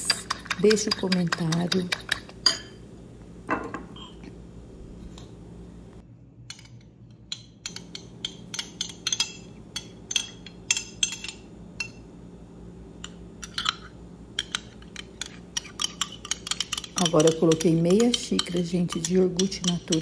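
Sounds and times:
low steady hum: 0.0 - 20.0
metal fork clinking against glass bowl: 15.2 - 20.0.

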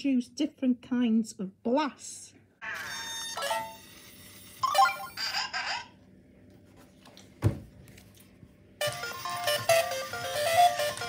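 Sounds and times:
toy robot electronic beeps: 4.6 - 5.9
chirping robot voice: 4.7 - 6.0.

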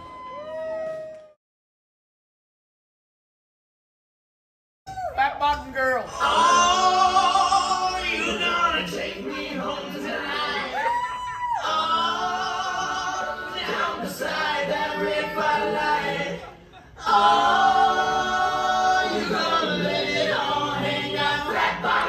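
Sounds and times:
song with held sung notes: 11.6 - 22.0.

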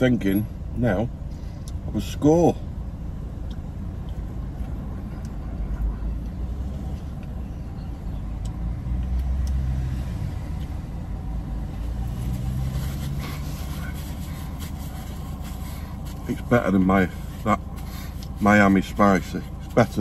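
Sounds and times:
motor vehicles rumbling: 0.0 - 20.0.

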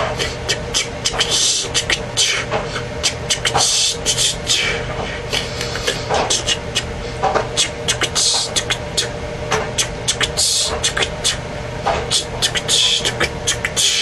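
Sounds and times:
steady low hum: 0.0 - 14.0
mouth tongue clicks: 5.3 - 6.9, 7.6 - 11.4, 12.1 - 14.0.

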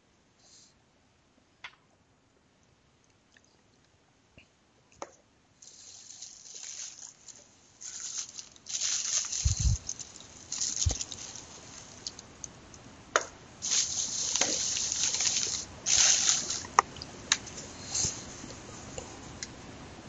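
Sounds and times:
short hissing rushes: 5.6 - 12.2, 13.6 - 16.8, 17.4 - 18.5.

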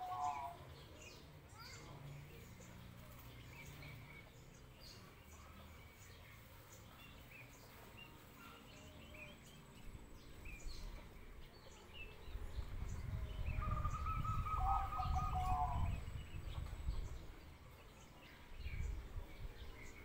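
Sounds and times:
dove cooing: 0.0 - 0.6, 13.5 - 16.0
small birds chirping: 0.0 - 20.0.

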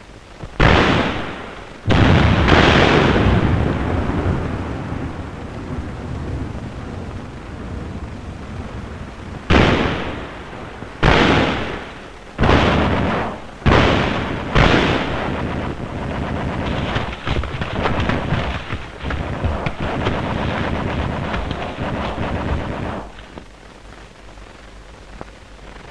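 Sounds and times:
rapid gunfire cracks: 0.0 - 4.7, 9.5 - 25.9
steady rumble: 0.0 - 25.9
heavy gunshots or blasts: 0.6 - 6.5, 9.5 - 23.4.

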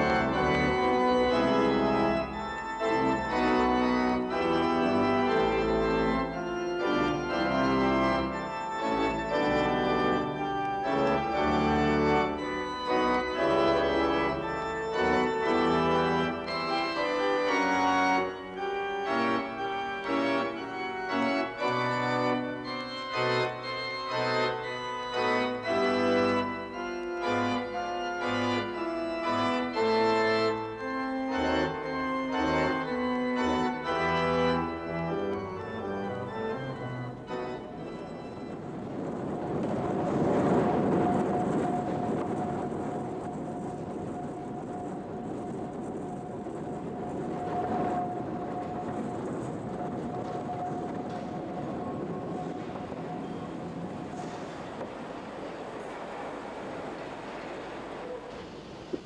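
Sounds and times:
organ music: 0.0 - 59.0.

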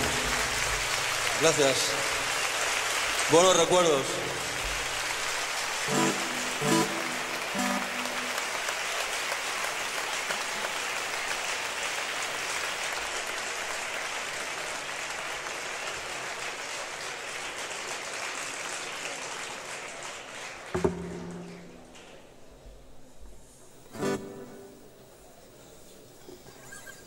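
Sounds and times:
audience applauding: 0.0 - 22.4
plucked acoustic guitar notes: 24.0 - 24.8.

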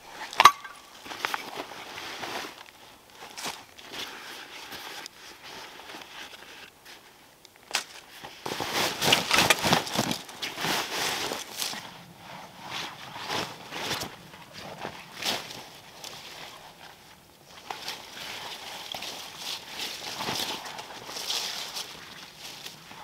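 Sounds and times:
canvas backpack rustling: 8.2 - 23.0.

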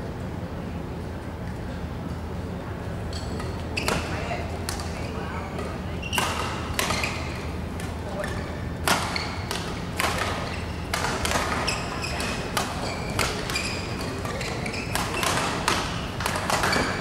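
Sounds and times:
shoes squeaking on floor: 3.1 - 4.4, 5.9 - 7.5, 8.2 - 9.5, 10.2 - 17.0
rackets striking shuttlecock: 3.1 - 17.0.

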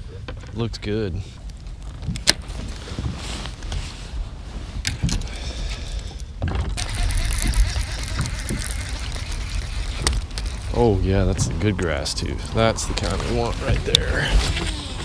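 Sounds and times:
wind rumble on microphone: 6.3 - 15.0.

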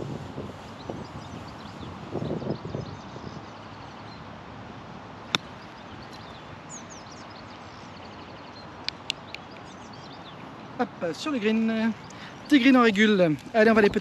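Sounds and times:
birds chirping: 0.6 - 4.4, 5.2 - 14.0
golf club striking ball: 5.3 - 5.6.

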